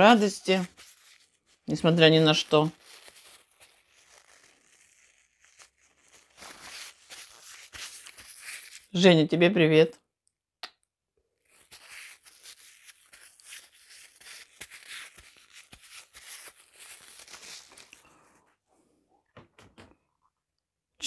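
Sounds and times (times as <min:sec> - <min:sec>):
hands rubbing together: 0:00.0 - 0:08.9, 0:11.5 - 0:18.0.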